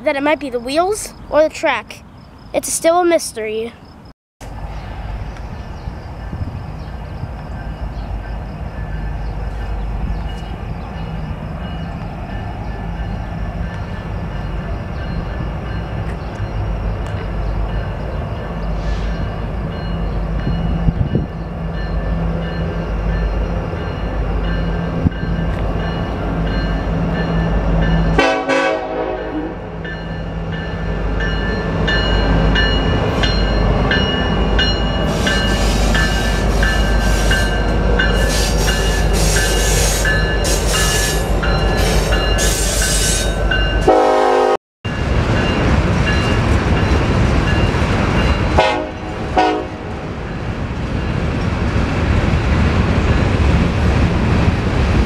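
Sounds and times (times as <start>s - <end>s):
diesel locomotives running: 4.4s - 55.0s
train horn: 28.2s - 29.6s, 41.9s - 44.6s, 48.6s - 49.9s.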